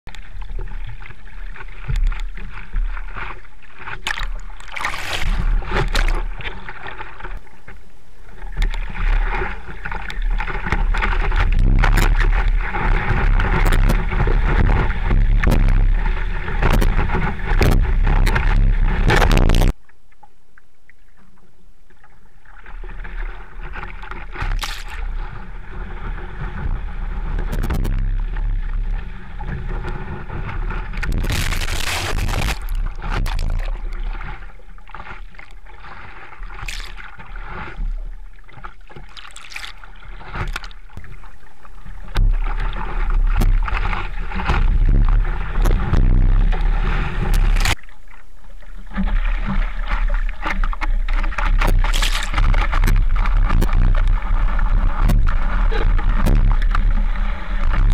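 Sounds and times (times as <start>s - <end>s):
water rushing and splashing: 0.1s - 7.7s, 8.3s - 19.8s, 22.6s - 57.9s
wind on microphone: 10.5s - 19.7s, 24.4s - 34.2s, 42.1s - 47.8s, 51.2s - 57.9s.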